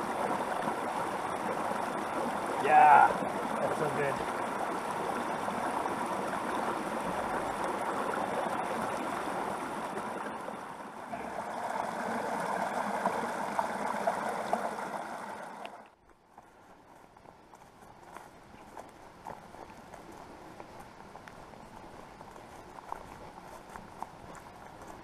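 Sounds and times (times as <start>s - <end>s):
creek gurgling over rocks: 0.0s - 25.0s.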